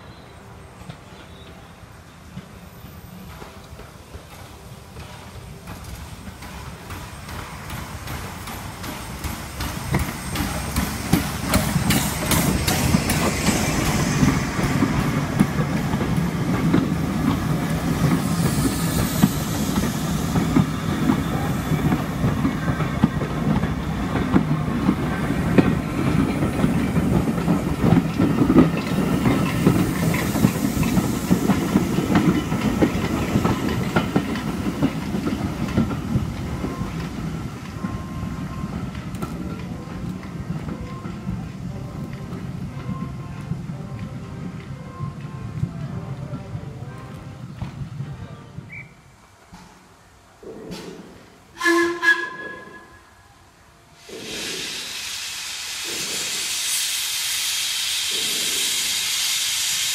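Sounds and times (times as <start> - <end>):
train rumbling past: 0.0 - 59.9.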